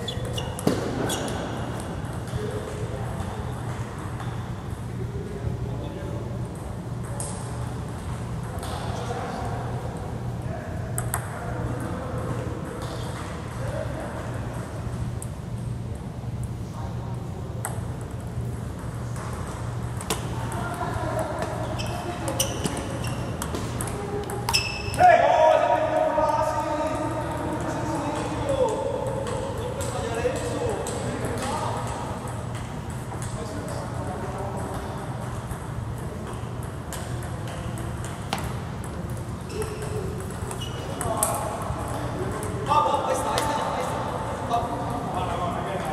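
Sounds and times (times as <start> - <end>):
table tennis ball hitting paddles: 0.1 - 4.8, 17.6 - 25.0, 27.3 - 42.7
ball bouncing on table: 0.2 - 4.4, 11.0 - 11.9, 18.8 - 25.0, 34.7 - 42.6.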